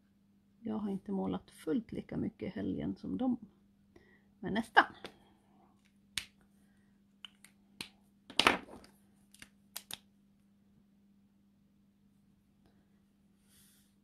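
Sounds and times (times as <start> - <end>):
plastic marker caps clicking: 7.2 - 10.1.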